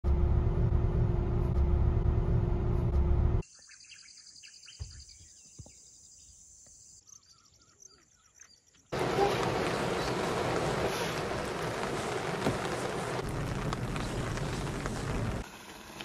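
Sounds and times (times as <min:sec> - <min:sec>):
birds chirping: 0:03.4 - 0:15.4
car cabin rumble: 0:09.0 - 0:15.4.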